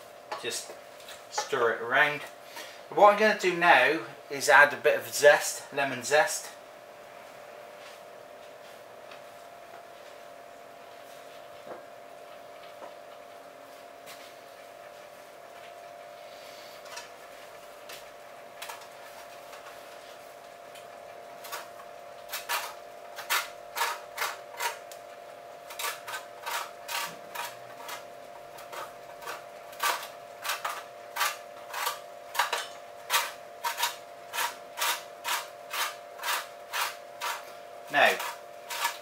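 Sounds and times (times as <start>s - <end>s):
steady hum: 0.0s - 39.0s
rind grating on metal grater: 21.4s - 24.9s, 25.6s - 39.0s.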